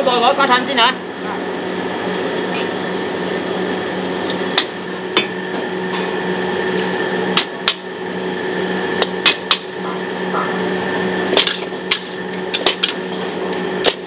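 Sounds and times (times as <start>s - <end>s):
low hum: 9.6s - 13.4s.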